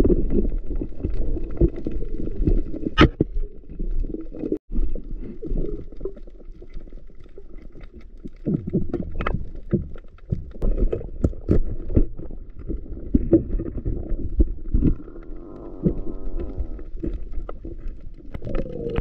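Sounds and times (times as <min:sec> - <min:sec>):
bubbling gurgle: 0:00.0 - 0:19.0
underwater rumble of moving water: 0:00.0 - 0:19.0
underwater clicks and knocks: 0:05.6 - 0:19.0.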